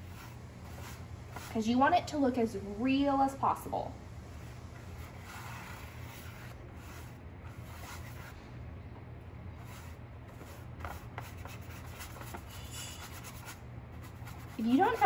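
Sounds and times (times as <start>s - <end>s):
paintbrush rubbing on paper plate: 0.0s - 1.7s, 4.3s - 8.4s, 9.6s - 15.0s.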